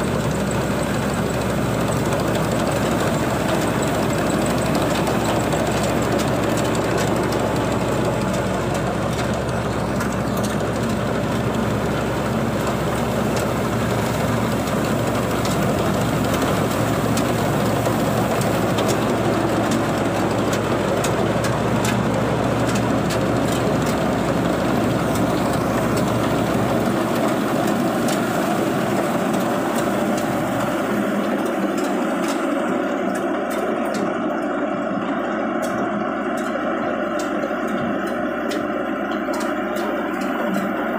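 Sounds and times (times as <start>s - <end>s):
combine harvester running: 0.0s - 40.9s.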